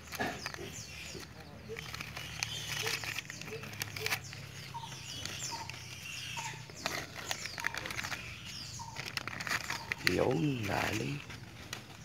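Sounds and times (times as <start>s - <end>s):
birds chirping: 0.0s - 12.0s
newspaper crinkling and tearing: 0.0s - 12.0s.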